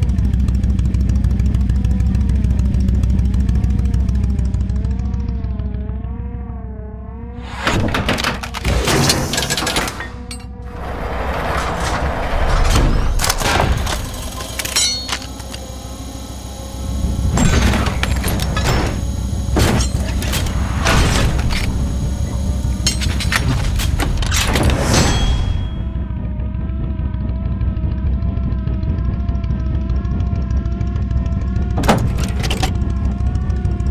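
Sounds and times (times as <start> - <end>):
low rumble: 10.2 - 31.8.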